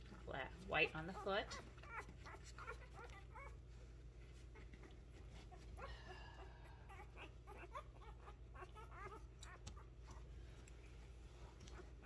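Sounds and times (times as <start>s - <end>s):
puppies squeaking and whimpering: 0.8s - 10.4s.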